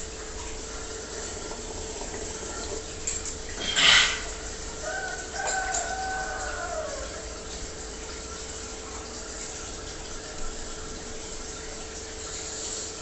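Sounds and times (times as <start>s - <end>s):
aquarium filter running water: 0.0s - 13.0s
rooster crowing: 4.8s - 7.2s.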